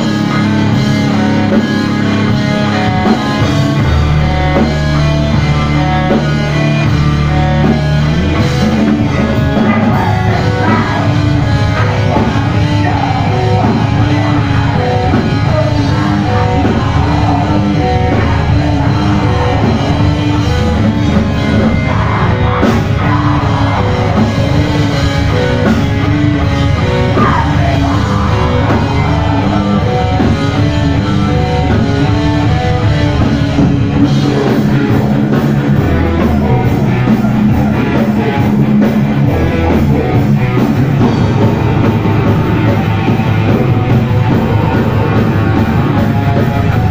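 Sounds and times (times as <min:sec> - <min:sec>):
drum kit: 0:00.0 - 0:46.9
electric guitars: 0:00.0 - 0:46.9
person singing into microphone: 0:08.6 - 0:25.7, 0:26.8 - 0:31.5.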